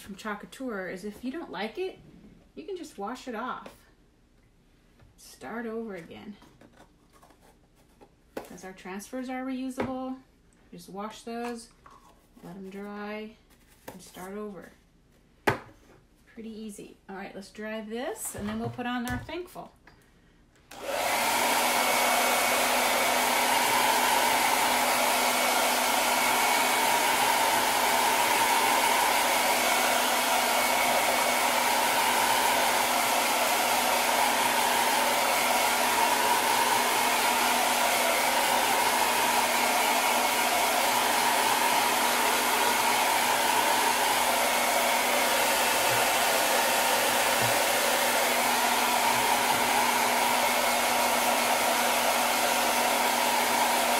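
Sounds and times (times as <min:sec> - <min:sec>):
hair dryer blowing: 0:20.7 - 0:53.9.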